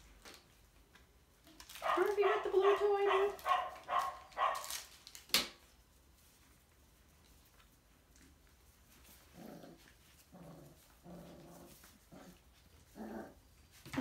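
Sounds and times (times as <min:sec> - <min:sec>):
puppies play vocalizing: 0:08.6 - 0:14.0.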